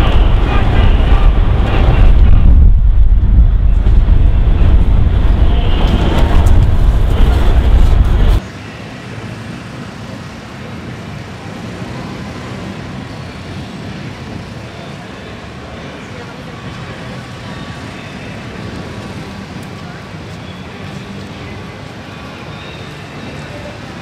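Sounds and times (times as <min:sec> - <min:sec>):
wind noise on microphone: 0:00.0 - 0:08.4
city street traffic hum: 0:00.0 - 0:24.0.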